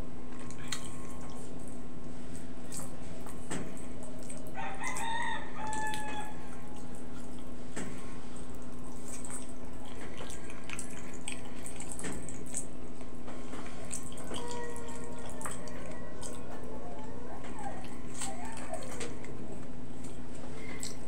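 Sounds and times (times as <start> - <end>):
wet mouth eating sounds: 0.3 - 21.0
lip smacks: 0.4 - 1.6, 20.0 - 21.0.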